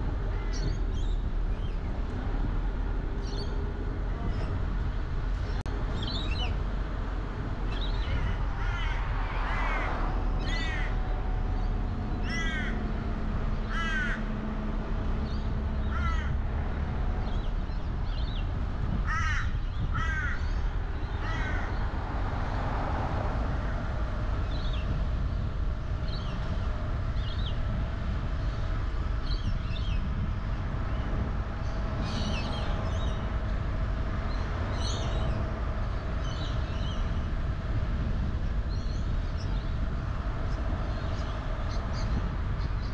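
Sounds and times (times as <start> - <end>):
road traffic rumble: 0.0 - 42.9
birds calling harshly: 0.2 - 1.9, 5.5 - 6.6, 7.7 - 14.4, 15.2 - 22.1, 28.3 - 37.4.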